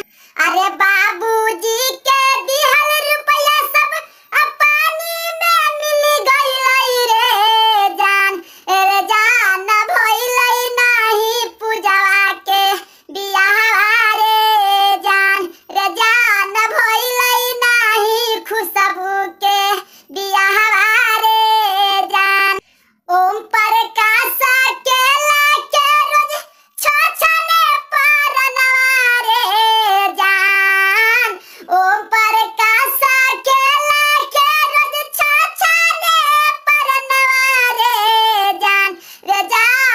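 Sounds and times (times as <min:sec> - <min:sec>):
high-pitched cartoon voice singing: 0:23.2 - 0:39.9.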